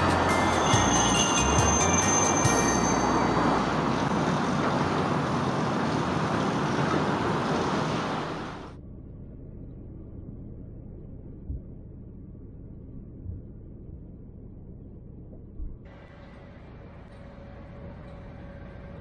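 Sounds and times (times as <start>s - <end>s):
train rushing overhead: 0.0s - 8.7s
road noise inside moving car: 0.0s - 8.8s.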